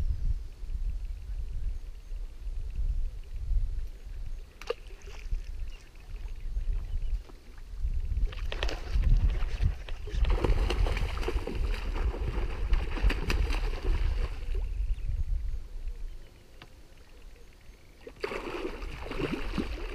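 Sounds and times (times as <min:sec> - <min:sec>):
fish thrashing and splashing: 0:18.1 - 0:19.9.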